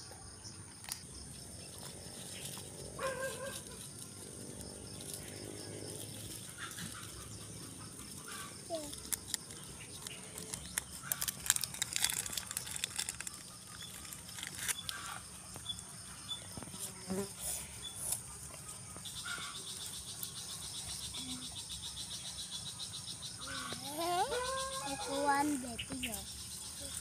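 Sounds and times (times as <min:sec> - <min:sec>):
fast insect trill: 0:00.2 - 0:18.4, 0:19.0 - 0:27.0
rustling vines: 0:08.2 - 0:15.3
high insect buzz: 0:13.2 - 0:18.4.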